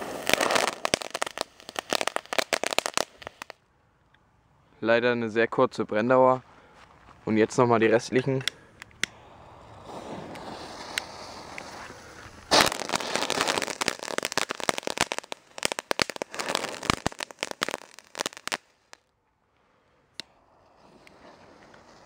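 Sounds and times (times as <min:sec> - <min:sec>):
firework fountains crackling: 0:00.0 - 0:03.6, 0:09.1 - 0:19.0, 0:20.3 - 0:22.0.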